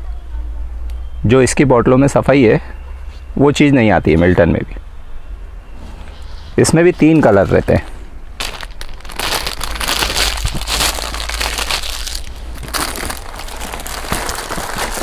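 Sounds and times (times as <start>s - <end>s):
plastic wrapping crinkling: 7.2s - 15.0s.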